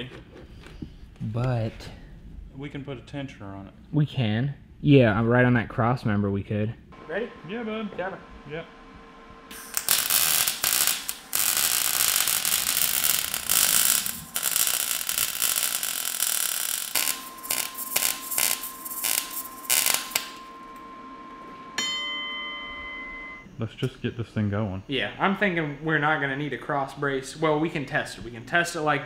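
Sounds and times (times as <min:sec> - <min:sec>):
welder crackling hiss: 0:09.5 - 0:20.4.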